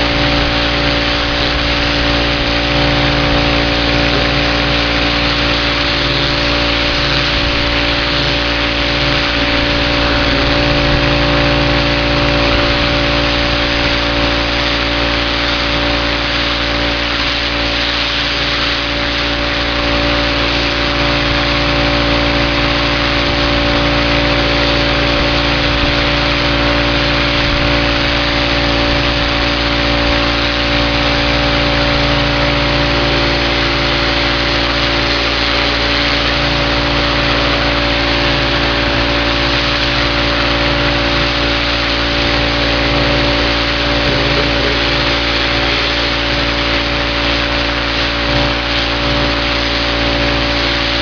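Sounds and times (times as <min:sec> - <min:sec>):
pressure washer engine running: 0:00.0 - 0:51.0
water spray hissing on siding: 0:00.0 - 0:51.0.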